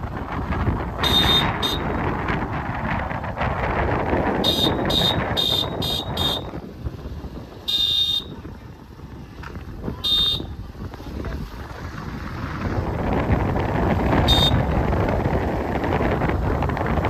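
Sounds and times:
wind rushing over microphone: 0:00.0 - 0:17.0
motorcycle horn beeping: 0:01.0 - 0:02.0, 0:04.4 - 0:06.6, 0:07.6 - 0:08.5, 0:09.9 - 0:10.6, 0:14.2 - 0:14.8.

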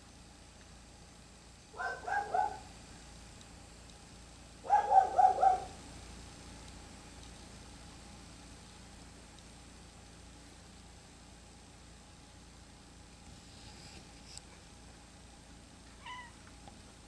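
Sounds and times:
animal calling: 0:01.8 - 0:02.7, 0:04.7 - 0:05.8.

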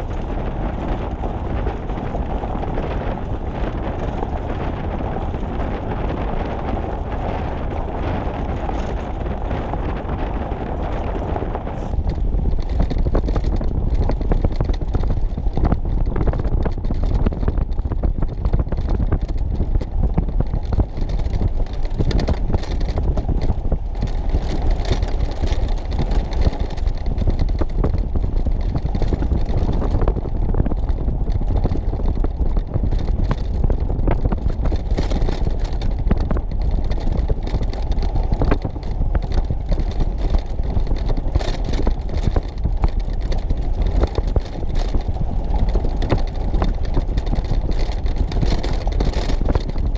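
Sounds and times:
vehicle engine and tyres rumbling: 0:00.0 - 0:49.9
wind buffeting microphone: 0:00.0 - 0:49.9
small knocks and rattles: 0:11.9 - 0:49.9.

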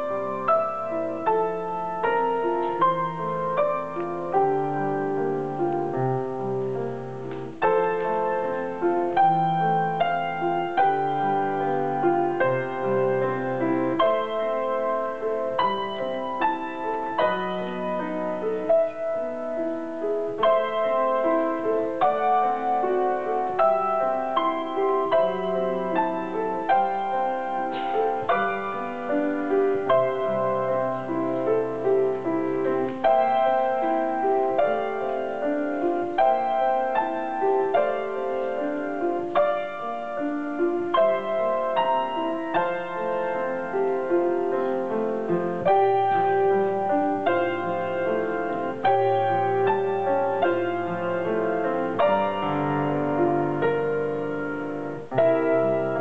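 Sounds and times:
solo grand piano: 0:00.0 - 0:56.0.

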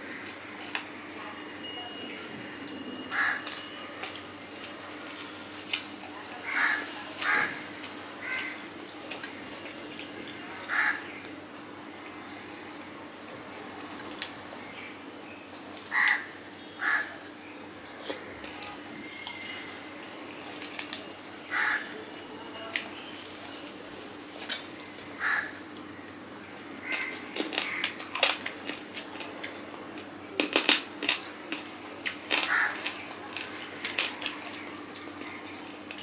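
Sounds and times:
mouth chewing: 0:18.0 - 0:26.2, 0:26.8 - 0:36.0.

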